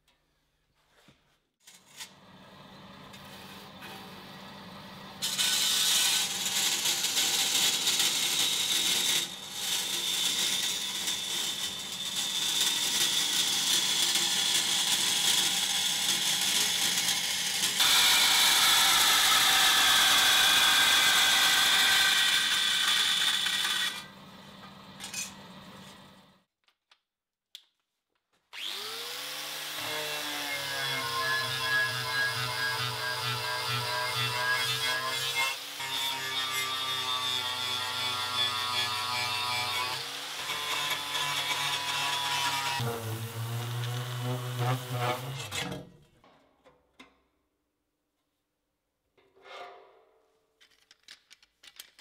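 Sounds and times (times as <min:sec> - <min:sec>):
power tool motor humming: 0:28.6 - 0:29.6.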